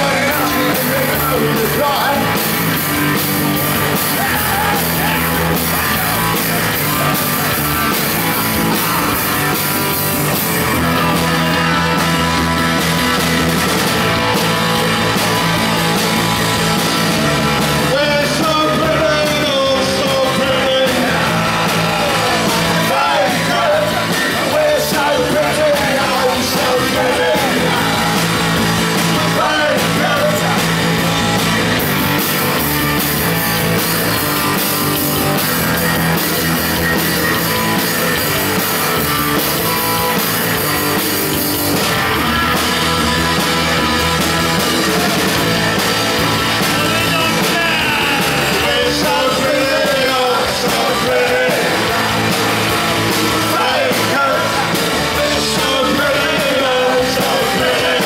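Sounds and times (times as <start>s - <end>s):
man singing: 0.0s - 2.6s, 17.8s - 31.2s, 42.4s - 52.4s, 53.0s - 58.0s
bass guitar: 0.0s - 58.0s
drums: 0.0s - 58.0s
electric guitar: 0.0s - 58.0s.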